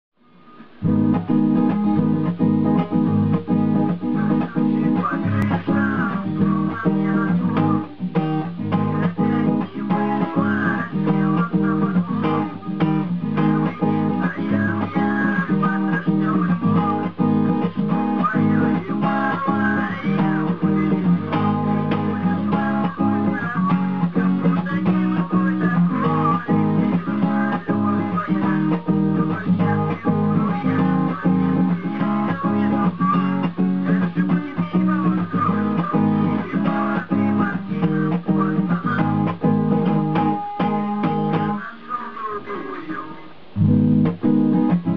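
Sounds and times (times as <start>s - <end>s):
acoustic guitar strumming: 0.3s - 44.9s.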